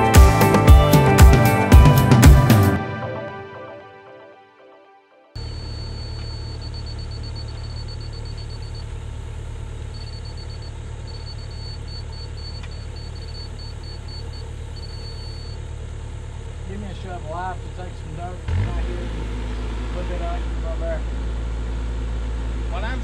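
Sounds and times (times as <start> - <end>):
diesel engine idling: 5.4 - 23.0.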